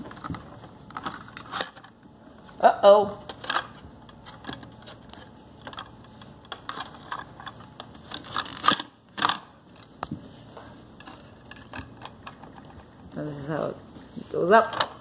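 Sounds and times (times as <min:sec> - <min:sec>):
plastic toy clicks and knocks: 0:08.1 - 0:09.4.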